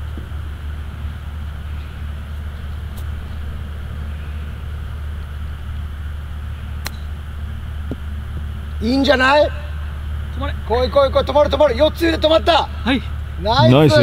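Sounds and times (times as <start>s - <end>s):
low rumble and hum: 0.0s - 14.0s
golf club striking ball: 6.8s - 7.2s.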